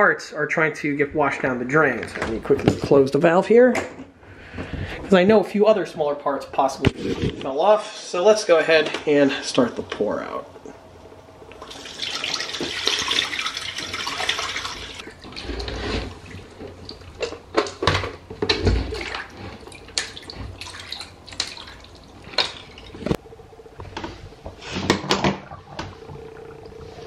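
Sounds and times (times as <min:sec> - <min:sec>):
water trickling and dripping: 0:11.4 - 0:15.4, 0:18.9 - 0:23.2
water pouring into bathtub: 0:11.5 - 0:17.3, 0:18.7 - 0:23.2.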